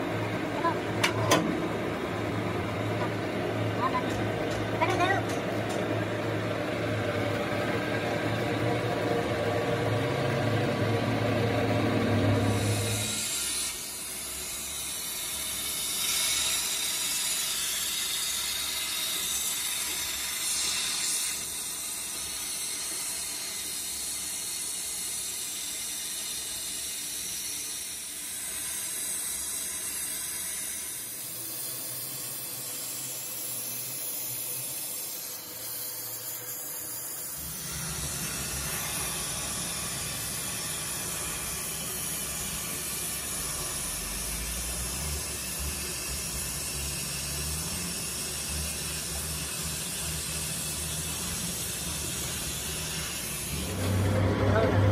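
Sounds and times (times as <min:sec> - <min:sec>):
torch flame hissing: 0:11.7 - 0:54.9.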